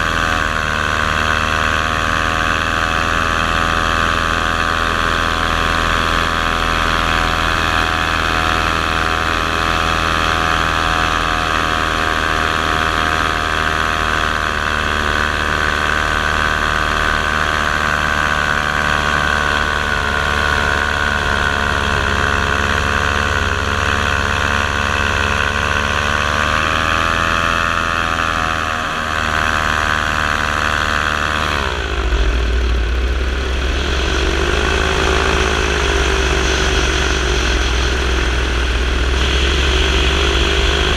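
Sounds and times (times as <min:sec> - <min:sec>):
model aircraft motor whining: 0:00.0 - 0:40.9
low rumble: 0:31.5 - 0:40.9.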